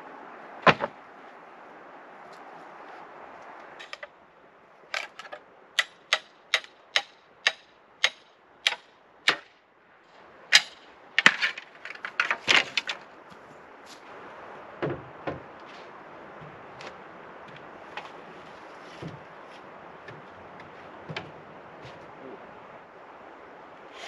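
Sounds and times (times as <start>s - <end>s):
steady background hiss: 0.0s - 24.0s
hammer blows: 5.8s - 9.5s, 10.5s - 11.6s.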